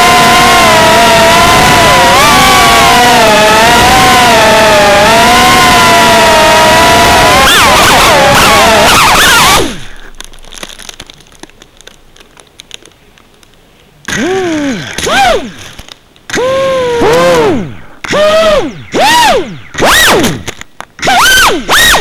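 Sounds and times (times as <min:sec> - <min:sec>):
rising and falling motor whine bursts: 0:00.0 - 0:09.9, 0:14.1 - 0:22.0
drone motors whining: 0:00.0 - 0:10.8, 0:14.1 - 0:22.0
drone crashing: 0:00.0 - 0:11.1
faint clicks: 0:10.0 - 0:16.5.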